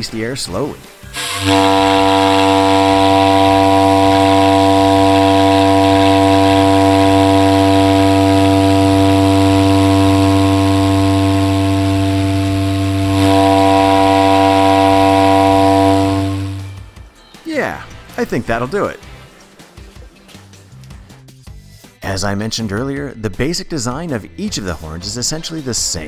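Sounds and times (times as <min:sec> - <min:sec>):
air horn low blast: 0:01.1 - 0:16.8.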